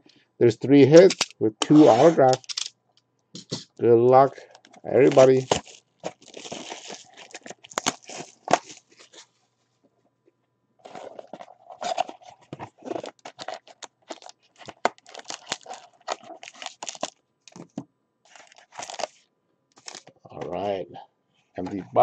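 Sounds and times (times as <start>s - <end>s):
cardboard scraping: 1.6s - 2.4s, 10.8s - 17.0s
plastic wrap crinkling: 4.4s - 9.3s, 10.8s - 20.2s.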